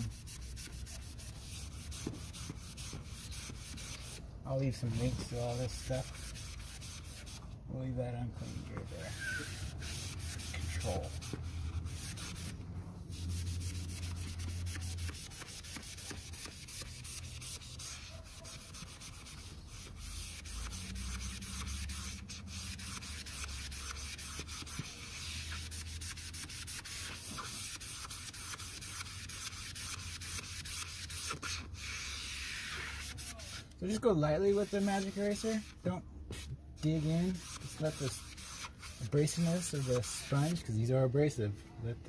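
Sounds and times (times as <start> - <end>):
sponge scrubbing vinyl: 0.0 - 7.5, 8.2 - 40.8.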